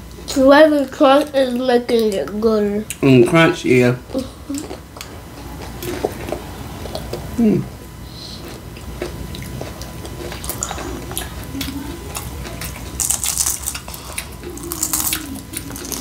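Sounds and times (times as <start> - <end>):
wet chewing and smacking: 4.5 - 16.0
crisp crunching of chips: 8.4 - 16.0.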